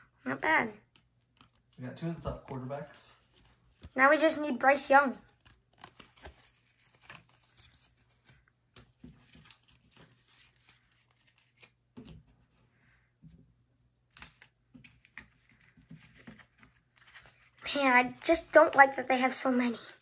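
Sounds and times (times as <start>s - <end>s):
trading cards flipped and laid down: 3.3s - 4.0s, 5.3s - 12.4s, 14.1s - 17.6s.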